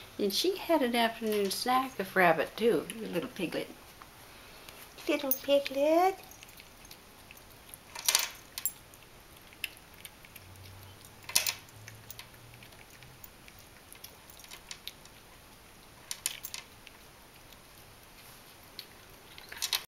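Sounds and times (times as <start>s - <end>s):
kitten chewing wetly: 6.2s - 19.9s.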